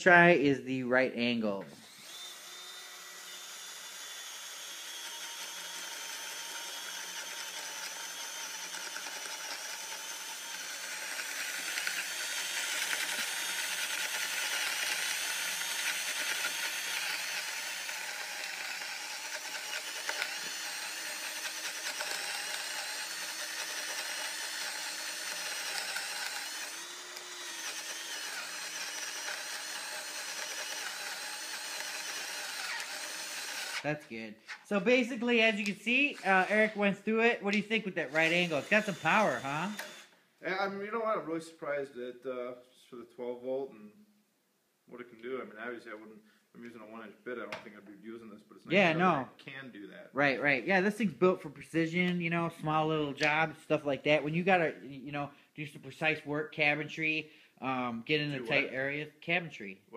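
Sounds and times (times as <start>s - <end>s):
drill boring into wood: 1.8s - 40.2s.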